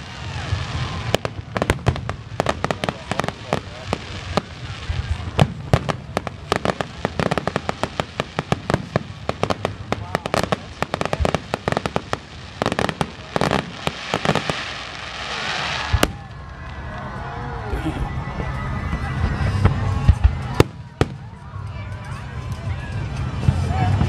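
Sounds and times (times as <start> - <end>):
fireworks hiss: 0.0 - 16.3
fireworks bangs and crackles: 0.0 - 17.2, 18.0 - 24.0.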